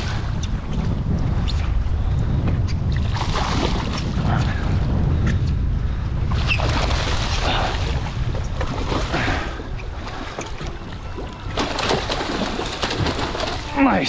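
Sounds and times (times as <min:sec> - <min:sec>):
wind rumbling on microphone: 0:00.0 - 0:14.0
fish splashing at the surface: 0:08.7 - 0:13.7.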